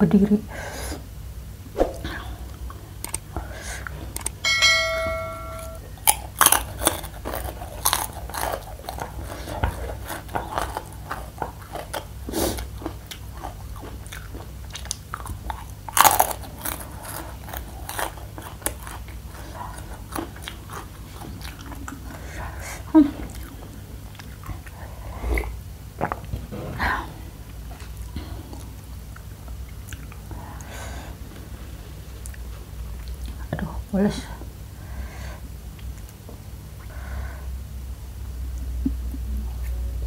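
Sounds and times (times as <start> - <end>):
bell-like ringing tone: 4.4 - 5.9
chewing crunchy snack: 6.0 - 26.5.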